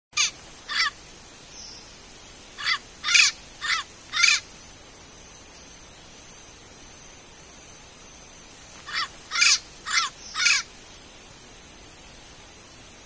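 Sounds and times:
parrot calls: 0.2 - 1.0, 2.6 - 4.5, 8.8 - 10.7.

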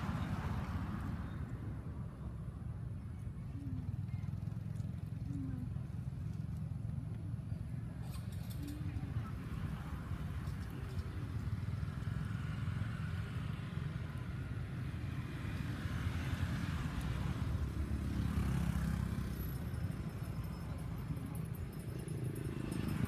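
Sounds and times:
traffic rumble: 0.0 - 23.0
vehicle passing: 8.9 - 23.0.

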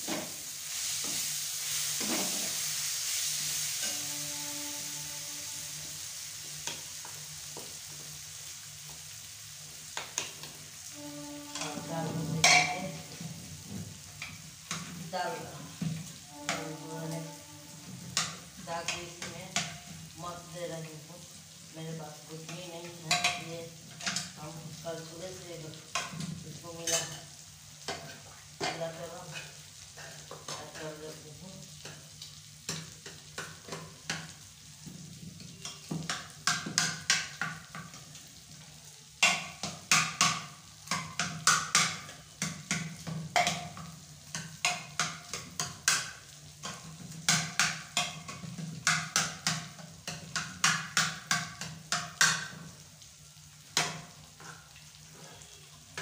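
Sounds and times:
spoon scraping a metal pot: 11.4 - 12.8.

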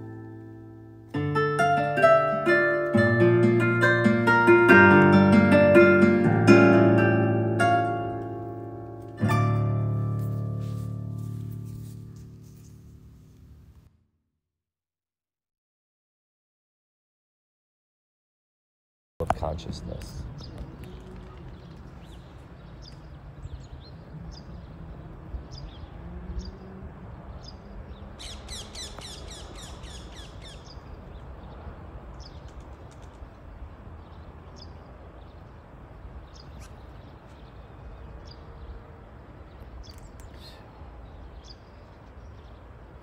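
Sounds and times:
small birds chirping: 19.3 - 43.0.

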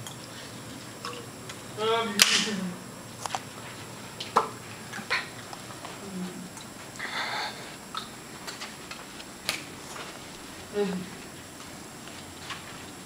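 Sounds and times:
person humming: 1.8 - 2.8, 6.0 - 7.6, 10.7 - 11.2
breathy exhale: 7.0 - 7.8.

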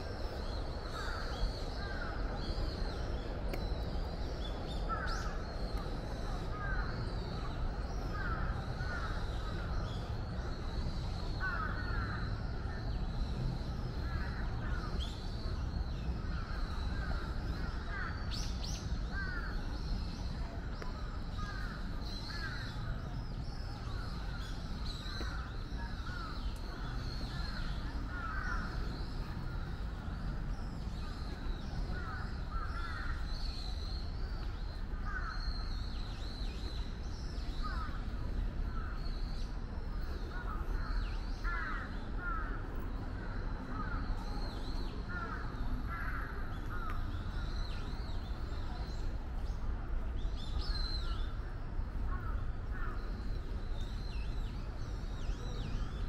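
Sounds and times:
crows cawing: 28.1 - 28.8, 41.4 - 42.6, 45.1 - 46.9.

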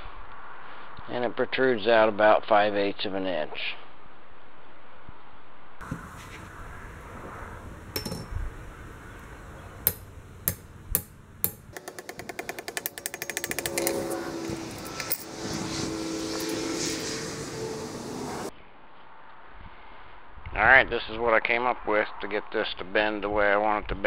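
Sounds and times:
hammer striking steel bar: 8.0 - 8.4, 9.8 - 15.2.

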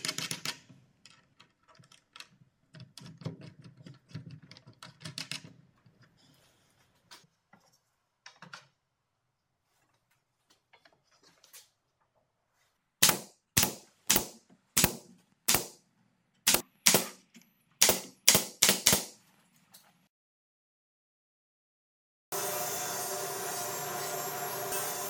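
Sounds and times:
nail gun firing into wood: 13.0 - 15.8, 16.5 - 17.2, 17.8 - 19.2.

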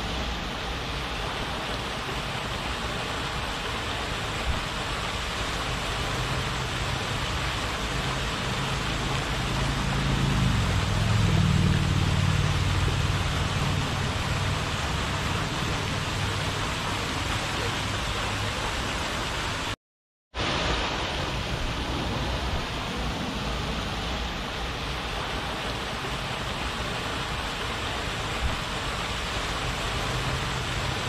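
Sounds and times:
fountain water spraying: 0.0 - 19.8, 20.4 - 31.0
low engine hum: 3.8 - 19.7.

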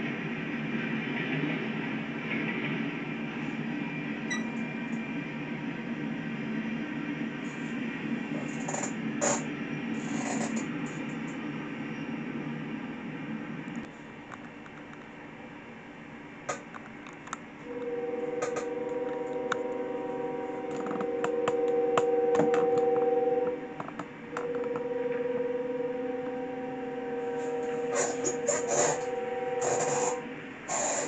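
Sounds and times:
locomotive air horn chord: 17.7 - 31.0.

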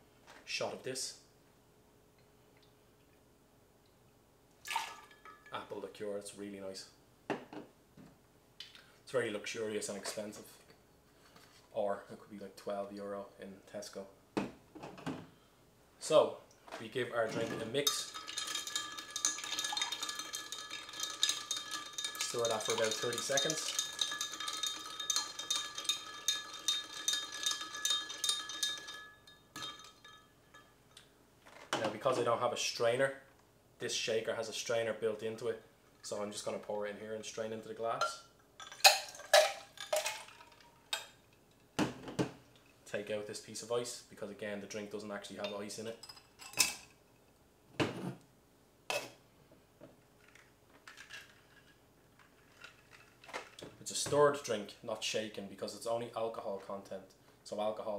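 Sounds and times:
spoon stirring clinking ice: 17.7 - 30.7, 38.6 - 41.1.

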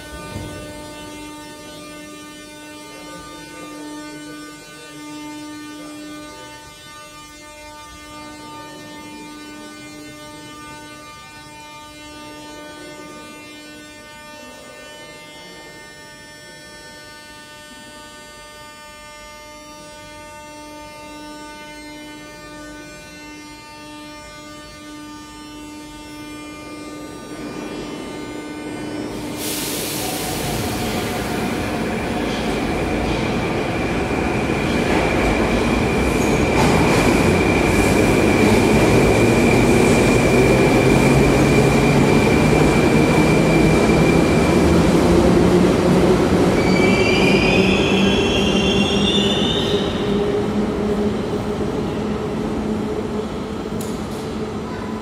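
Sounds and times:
train electrical hum: 0.0 - 55.0
train pulling away: 27.2 - 55.0
hiss of air: 29.3 - 31.3
high wheel squeal: 46.5 - 50.3.

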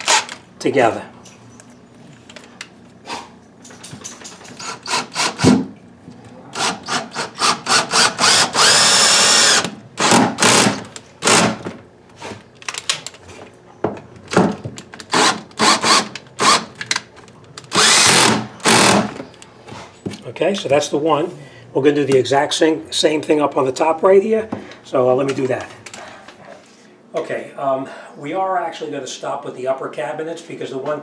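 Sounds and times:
drill driving screw into wood: 0.0 - 0.4, 4.6 - 5.7, 6.6 - 11.7, 15.1 - 16.7, 17.7 - 19.2.

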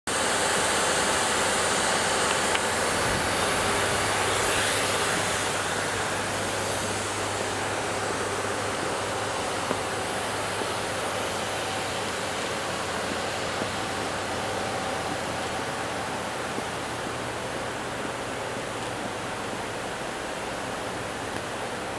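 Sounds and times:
steady rushing noise: 0.1 - 21.9.

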